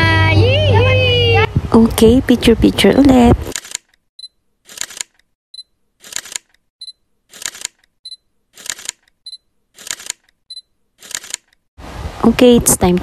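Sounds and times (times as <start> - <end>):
camera shutter: 3.4 - 4.0, 4.6 - 5.2, 6.0 - 6.6, 7.3 - 7.9, 8.5 - 9.1, 9.8 - 10.4, 11.0 - 11.6.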